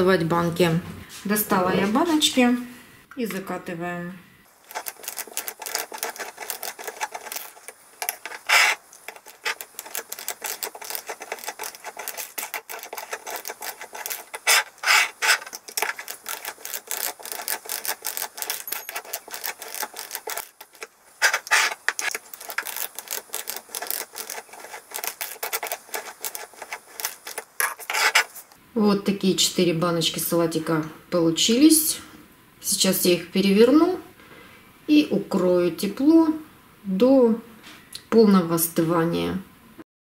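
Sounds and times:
canning seamer scraping and clicking: 0:04.5 - 0:28.6.

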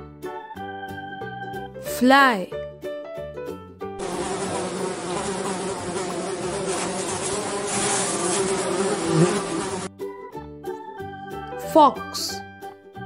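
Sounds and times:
flies buzzing: 0:04.0 - 0:09.9.

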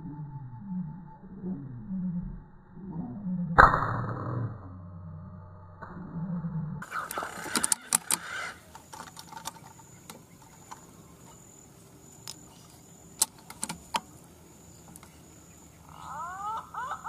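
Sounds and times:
faint high-pitched hum: 0:04.3 - 0:17.0.

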